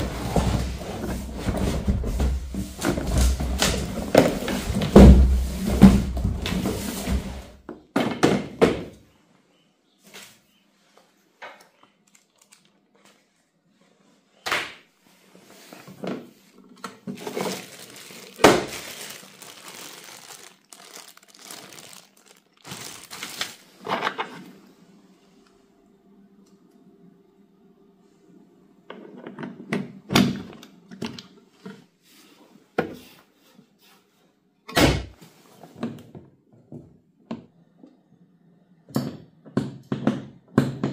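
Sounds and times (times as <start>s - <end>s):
plastic parts clicking and rustling: 11.5s - 13.2s, 16.6s - 24.3s.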